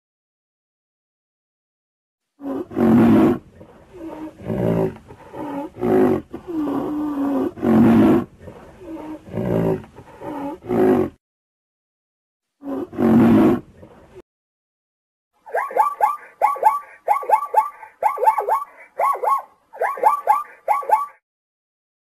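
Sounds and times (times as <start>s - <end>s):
animal growling calls: 2.4s - 11.2s, 12.6s - 14.2s
animal roars: 2.4s - 11.2s, 12.6s - 14.2s.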